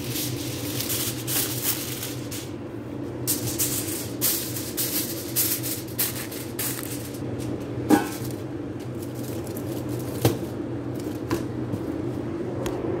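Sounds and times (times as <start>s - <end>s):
aluminium foil crinkling: 0.0s - 2.5s, 3.3s - 7.2s, 8.1s - 10.2s
steady low hum: 0.0s - 13.0s.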